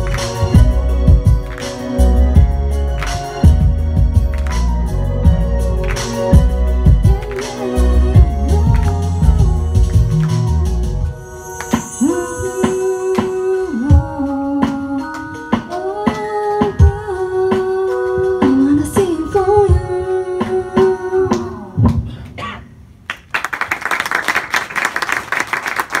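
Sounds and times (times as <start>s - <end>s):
audience clapping: 0.0s - 2.1s, 2.9s - 3.6s, 4.2s - 4.9s, 5.8s - 6.5s, 7.1s - 7.9s, 8.7s - 9.2s, 10.2s - 10.6s, 23.0s - 26.0s
backing track with steady beat: 0.0s - 22.1s
women singing: 7.0s - 10.6s.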